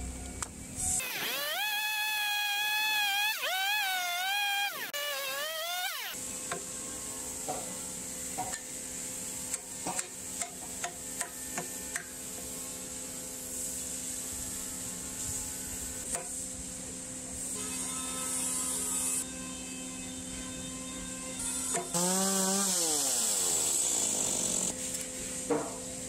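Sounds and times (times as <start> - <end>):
constant low hum: 0.0 - 1.1
chainsaw running: 1.0 - 6.2, 21.9 - 24.8.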